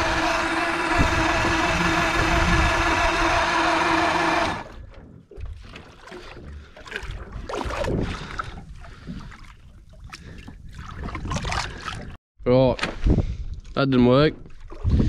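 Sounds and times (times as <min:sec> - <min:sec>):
boat engine running: 0:00.0 - 0:07.3
water lapping against hull: 0:01.2 - 0:12.2, 0:14.4 - 0:15.0.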